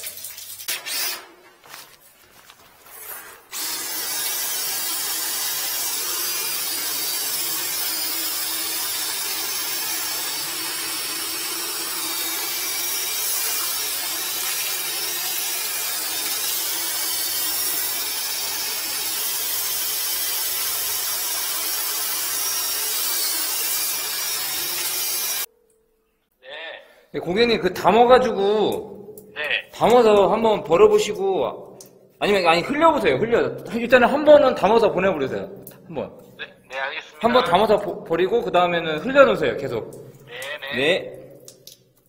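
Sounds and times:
drain-cleaning machine running: 3.5s - 25.5s.

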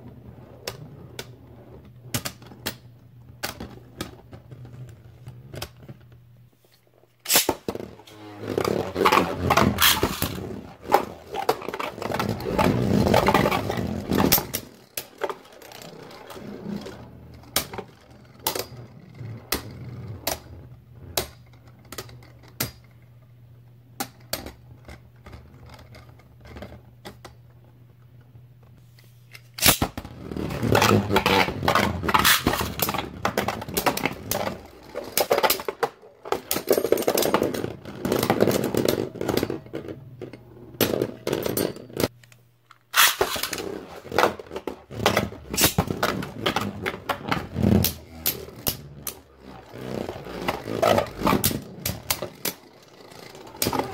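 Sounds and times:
spinning tops whirring and clicking: 8.9s - 18.9s.

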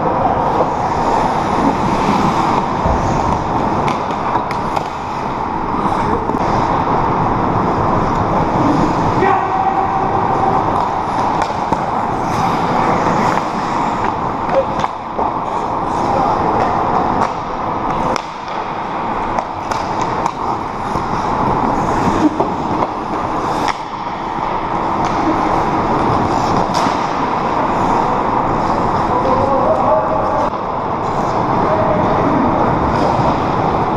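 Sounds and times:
hockey sticks and puck clacking: 0.1s - 6.9s, 8.0s - 32.2s, 32.8s - 33.9s
skate blades scraping ice: 0.4s - 6.7s, 10.7s - 16.2s, 17.1s - 29.3s.

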